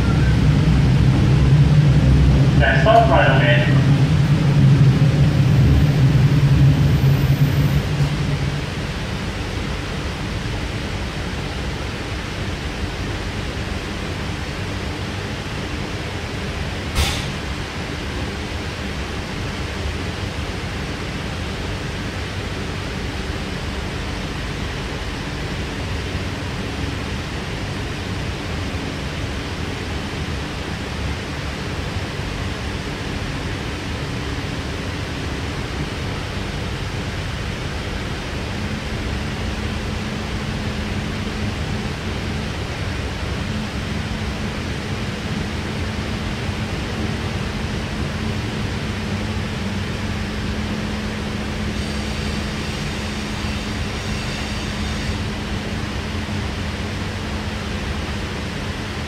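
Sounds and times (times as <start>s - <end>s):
train wheels rumbling on track: 0.0s - 59.0s
sharp click: 17.0s - 17.4s.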